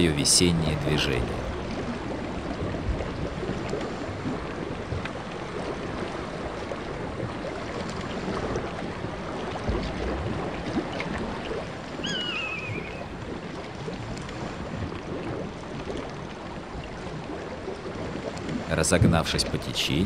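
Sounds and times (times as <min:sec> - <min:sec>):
rushing water and ice: 0:00.0 - 0:20.0
bird wavering call: 0:12.0 - 0:13.2.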